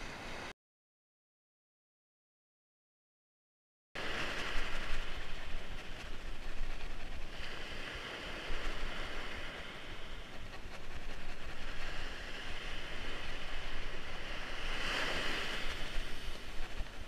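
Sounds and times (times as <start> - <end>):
surf washing up beach: 0.0 - 0.5, 4.0 - 17.0
wind buffeting microphone: 4.0 - 17.0.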